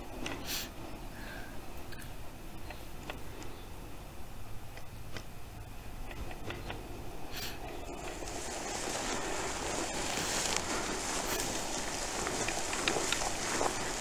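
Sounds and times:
rustling of dry grass: 5.5 - 14.0
wind rumble on microphone: 5.5 - 14.0
clothing brushing past grass: 7.3 - 14.0.

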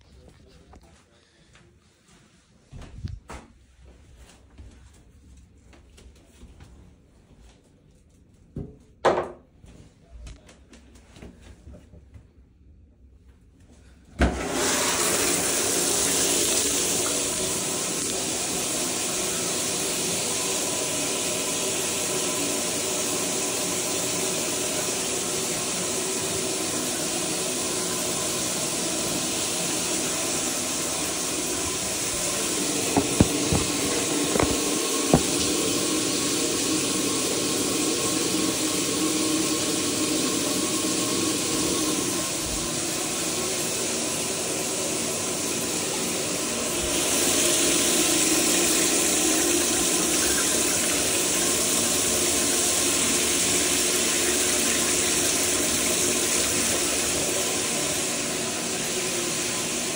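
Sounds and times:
shower water running: 14.3 - 59.9
short knocks: 32.9 - 35.5.

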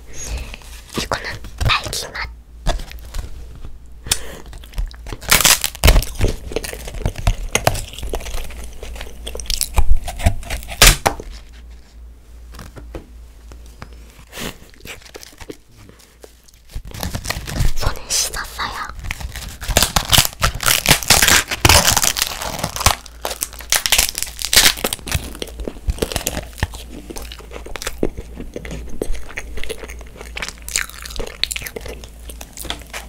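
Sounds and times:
paper tearing and crunching: 2.7 - 11.8, 14.3 - 28.9
soft chewing: 4.1 - 5.3, 6.1 - 10.8, 13.5 - 17.0, 25.0 - 33.0.

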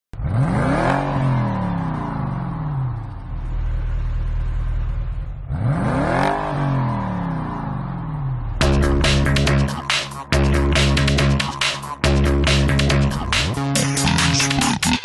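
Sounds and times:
car engine revving: 0.2 - 15.0.

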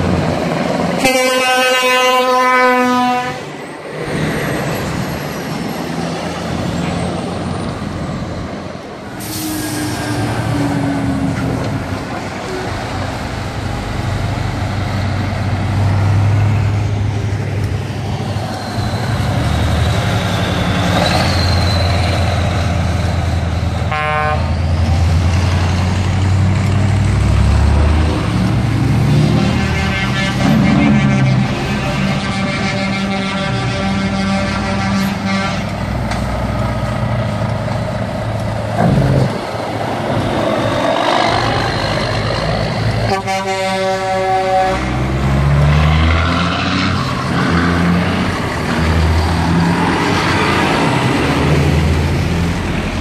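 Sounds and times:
trucks driving past: 0.0 - 53.0
truck horn toot: 1.0 - 3.5, 23.9 - 24.6, 29.2 - 35.8, 43.0 - 45.0
brief air hiss: 9.2 - 10.2.

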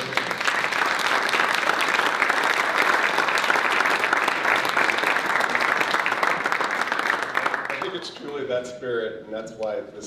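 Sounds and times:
crowd applauding: 0.0 - 8.5.

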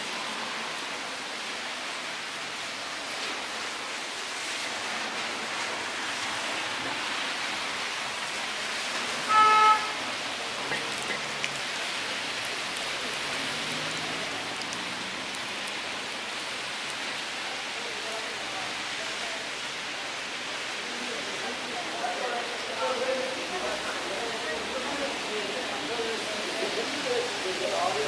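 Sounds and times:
rain hissing: 0.0 - 28.0
vehicle horn toot: 9.2 - 10.1.

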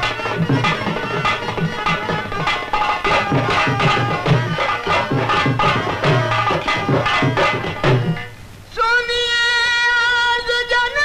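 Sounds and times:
fast hand-drum rhythm with melody: 0.0 - 8.3.

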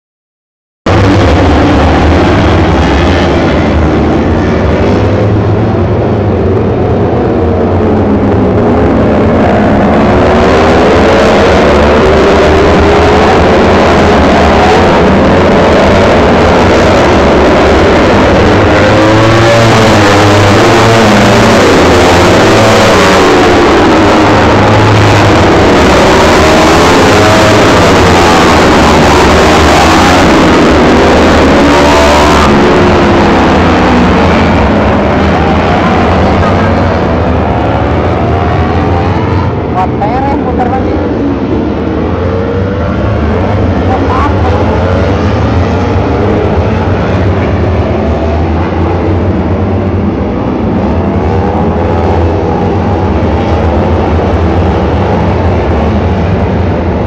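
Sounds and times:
racing motorcycles at high revs: 0.9 - 57.0.

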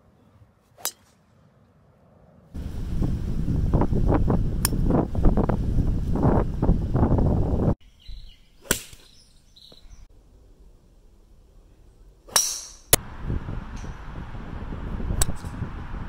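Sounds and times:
wind buffeting microphone: 2.6 - 7.8, 13.0 - 16.0.

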